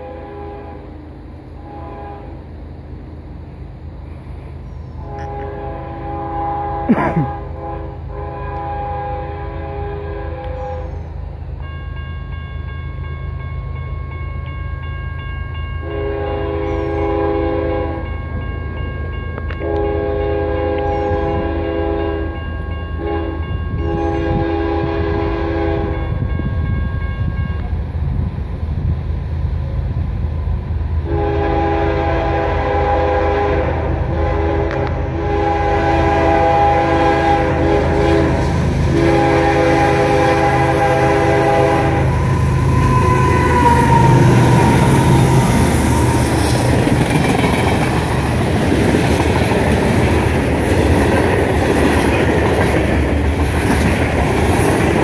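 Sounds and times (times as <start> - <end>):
locomotive air horn blasts: 0.0 - 1.0, 1.6 - 2.5, 5.0 - 11.0, 15.8 - 18.1, 19.5 - 26.4, 31.0 - 46.7.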